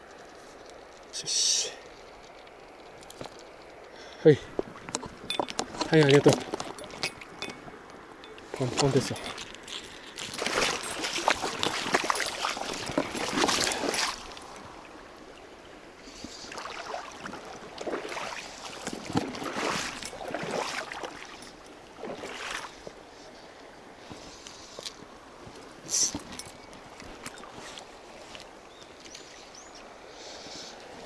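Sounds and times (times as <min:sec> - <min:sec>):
flowing river: 0:00.0 - 0:31.0
tackle clicks and rustles: 0:01.8 - 0:14.7.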